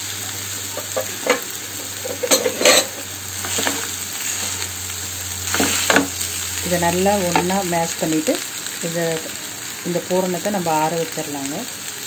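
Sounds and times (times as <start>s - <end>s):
masala sizzling in oil: 0.0s - 12.0s
spatula scraping a pan: 0.7s - 4.8s.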